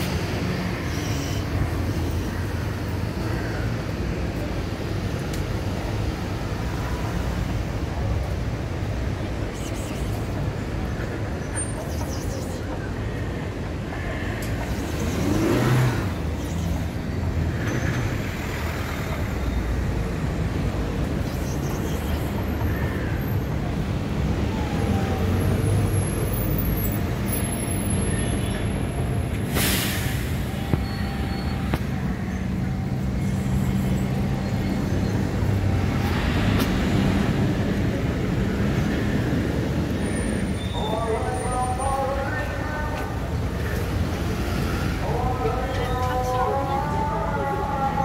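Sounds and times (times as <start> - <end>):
road traffic rumble: 0.0 - 48.0
short hiss: 29.5 - 30.5.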